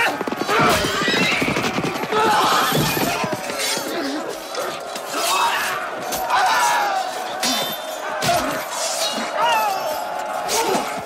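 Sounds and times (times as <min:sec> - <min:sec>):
horses galloping and neighing: 0:00.0 - 0:06.3
men shouting and crying out: 0:00.0 - 0:11.0.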